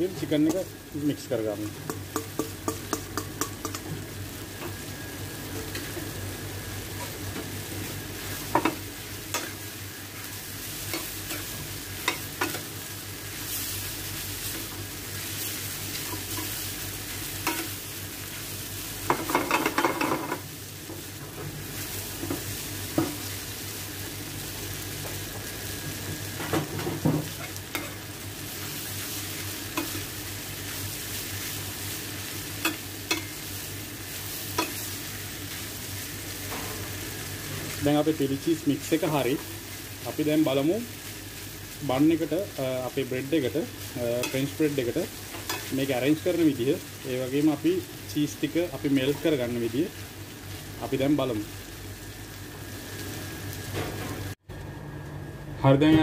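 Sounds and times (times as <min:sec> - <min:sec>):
food sizzling in a pan: 0:00.0 - 0:55.2.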